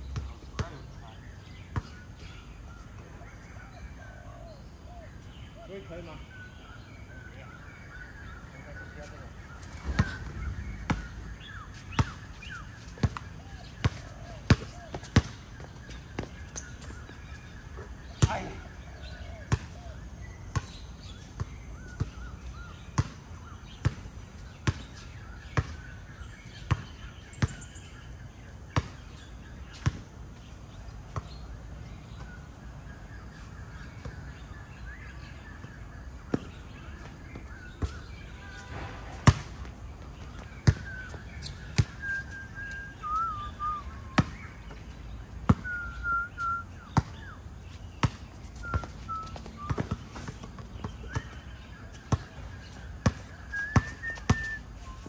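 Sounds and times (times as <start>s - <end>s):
basketball bouncing on a court: 0.1s - 0.8s, 9.7s - 17.0s, 18.1s - 18.7s, 20.5s - 25.0s, 26.7s - 27.7s, 28.8s - 29.0s, 36.3s - 36.6s, 37.7s - 39.7s, 40.3s - 42.0s, 44.2s - 44.8s, 45.5s - 45.9s, 46.5s - 47.3s, 48.0s - 51.4s, 52.1s - 54.6s.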